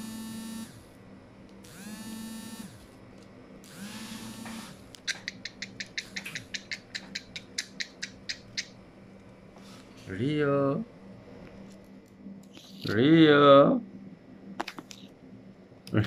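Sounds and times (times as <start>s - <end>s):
small electric motor whirring: 0.0s - 1.0s, 1.6s - 3.0s, 3.6s - 4.9s
sharp clicks: 4.9s - 8.8s.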